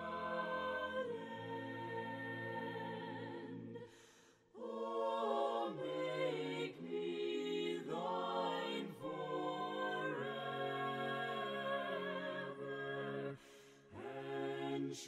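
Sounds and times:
choir singing a cappella: 0.0 - 15.0.

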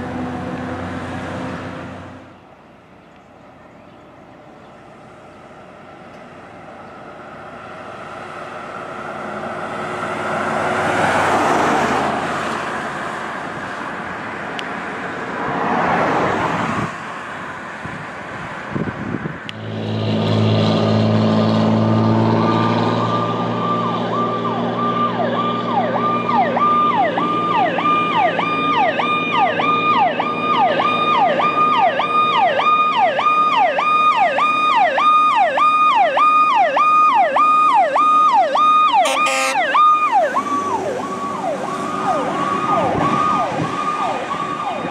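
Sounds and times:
fire engine diesel engine: 0.0 - 44.9
vehicles passing by: 0.0 - 44.9
electronic siren sweeping: 22.2 - 44.9.

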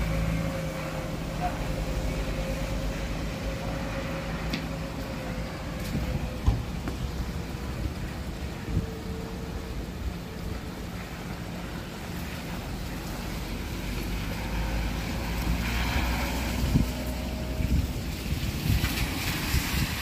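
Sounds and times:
bus engine rumble: 0.0 - 20.0
tyres hissing on wet road: 0.0 - 20.0
wind noise on microphone: 5.5 - 11.0, 15.0 - 20.0.

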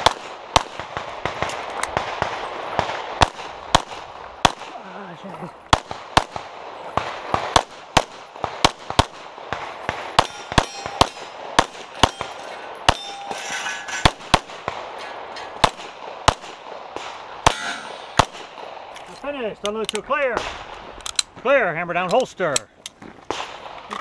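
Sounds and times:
pistol shots: 0.0 - 4.8, 5.7 - 13.4, 14.0 - 18.9, 23.0 - 24.0
bullets clanging on steel targets: 10.2 - 15.8, 17.1 - 18.3.

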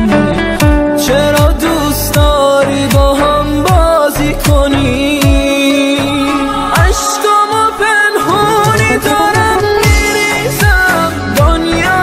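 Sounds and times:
pop song with sliding melody: 0.0 - 12.0.

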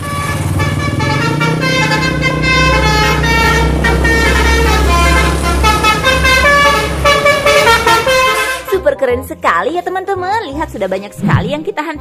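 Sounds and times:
bus engines rumbling: 0.0 - 8.7
musical bus horns tooting: 0.0 - 9.1.

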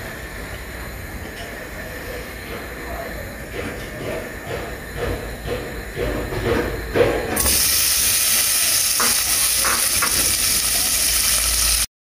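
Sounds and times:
bacon sizzling in oil: 7.4 - 11.9.

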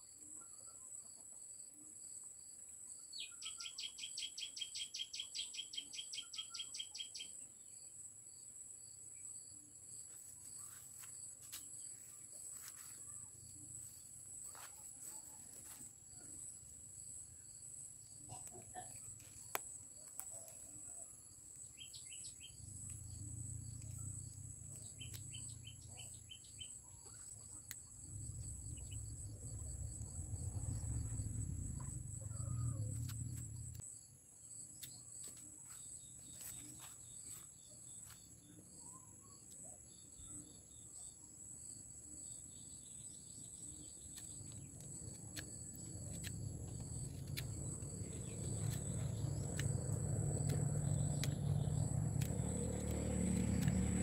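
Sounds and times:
bird chirping: 3.0 - 7.9, 17.0 - 33.8, 42.2 - 54.0
insects trilling: 3.2 - 54.0
low rumbling noise: 28.0 - 33.8.

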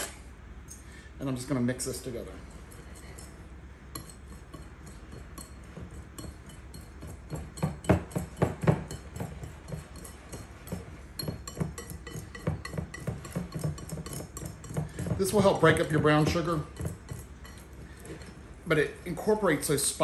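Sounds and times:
whisk wires clinking against glass: 2.4 - 19.1.

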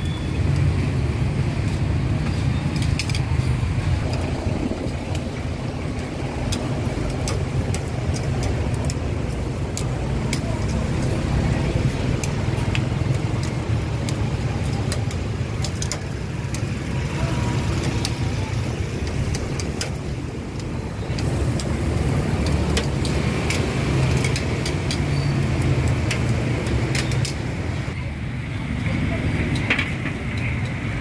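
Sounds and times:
rumble of passing traffic: 0.0 - 31.0.

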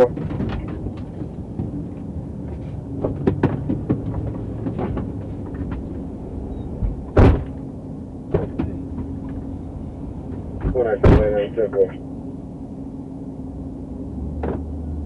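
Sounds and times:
car interior hum: 0.0 - 15.0
car door shutting: 6.8 - 7.6, 8.3 - 9.4, 10.6 - 11.4, 14.4 - 14.7.

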